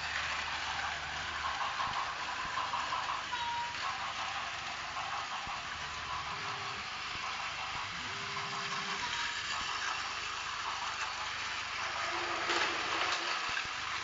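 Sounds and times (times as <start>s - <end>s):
toy trains whirring and rattling: 0.0s - 14.0s.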